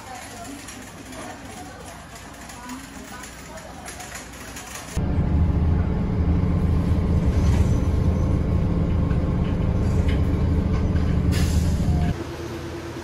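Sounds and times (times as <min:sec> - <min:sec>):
bus engine and road rumble: 0:02.8 - 0:13.0.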